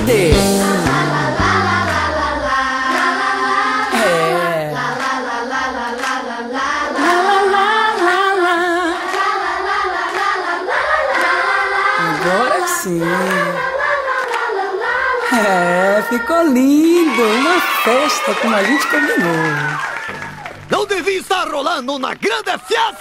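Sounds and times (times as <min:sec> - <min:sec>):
person singing long notes: 0:00.0 - 0:03.0, 0:03.8 - 0:05.0.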